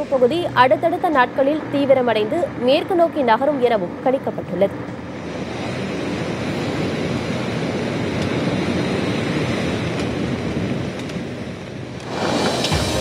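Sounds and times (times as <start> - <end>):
surf breaking on rock seawall: 12.0 - 13.0.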